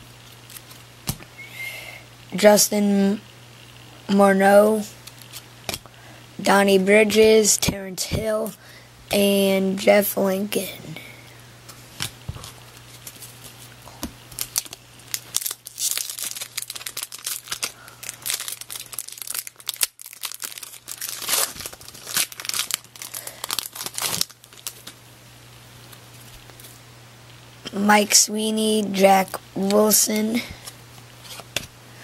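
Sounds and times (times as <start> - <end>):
foil wrapper crinkling and tearing: 14.3 - 25.0.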